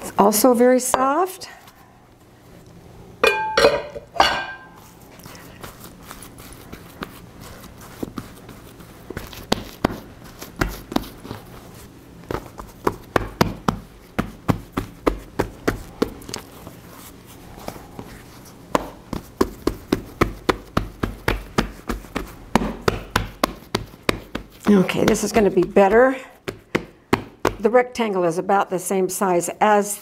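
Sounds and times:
hands patting dough: 4.7 - 28.0.

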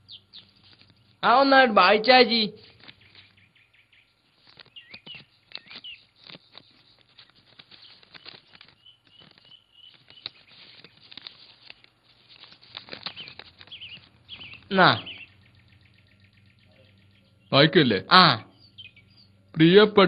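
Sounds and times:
birds chirping: 0.0 - 20.0
paper rustling and crackling: 0.4 - 1.2, 2.6 - 3.5, 4.2 - 15.3.

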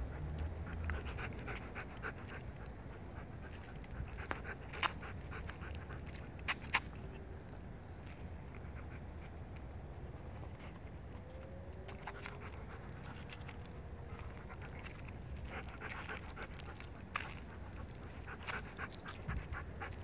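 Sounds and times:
dog panting: 0.0 - 6.3, 11.9 - 20.0.

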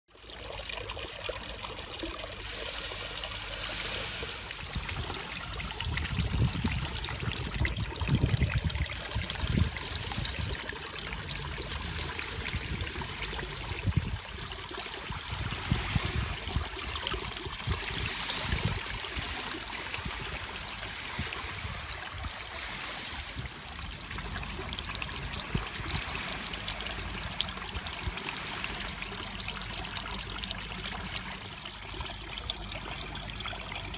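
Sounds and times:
fountain water trickling and splashing: 0.1 - 33.9
low rumbles: 2.3 - 14.4.

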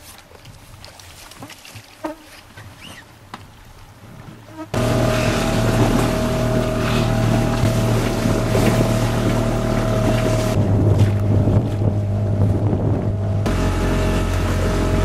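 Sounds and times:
hiss of wind and water: 0.0 - 15.0
outboard motor running: 4.7 - 15.0.

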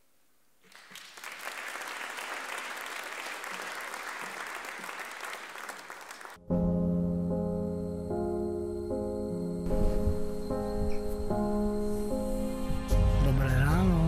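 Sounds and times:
audience applauding: 0.6 - 6.4
gentle music with sustained chords: 6.4 - 14.0.

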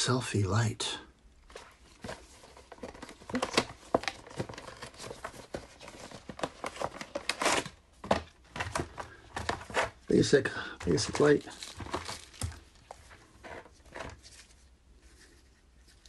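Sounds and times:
cardboard box being opened: 1.5 - 10.0.

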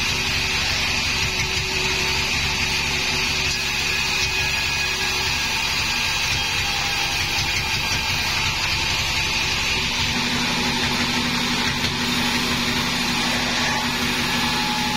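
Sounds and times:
band saw running: 0.0 - 14.9.

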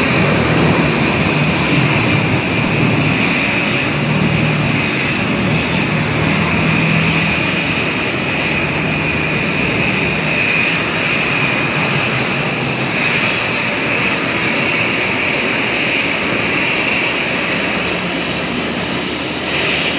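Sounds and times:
jet engine high whine: 0.0 - 19.9.

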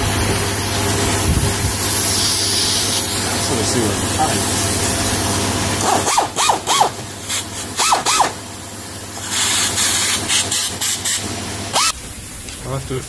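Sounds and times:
short squeals: 5.8 - 7.0, 7.8 - 8.4, 11.7 - 12.0
rotary tool grinding metal: 5.8 - 8.4.

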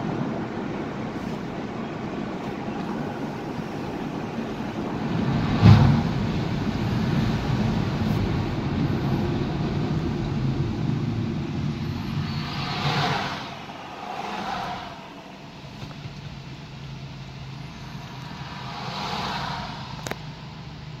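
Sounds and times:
car road and engine noise: 0.0 - 21.0
hiss: 11.6 - 15.5, 17.6 - 20.4.

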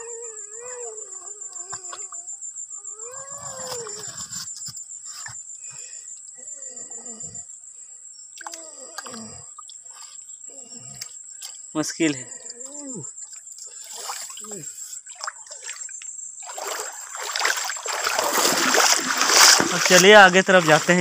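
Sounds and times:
insects droning: 0.0 - 21.0
hand splashing in stream water: 13.8 - 21.0.

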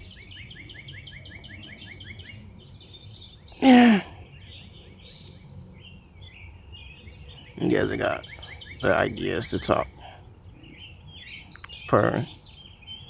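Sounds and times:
songbird chirping: 0.0 - 13.0
short falling vocal sound: 3.6 - 4.2.

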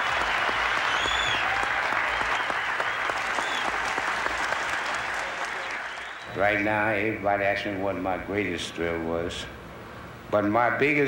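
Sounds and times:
large crowd applauding: 0.0 - 6.3.

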